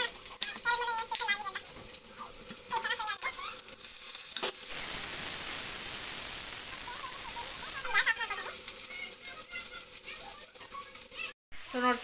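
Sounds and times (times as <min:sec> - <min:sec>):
food sizzling in hot oil: 0:00.0 - 0:12.0.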